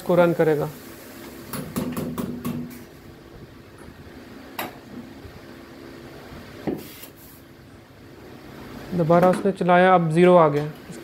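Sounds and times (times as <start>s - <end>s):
low machine hum: 0.0s - 6.7s.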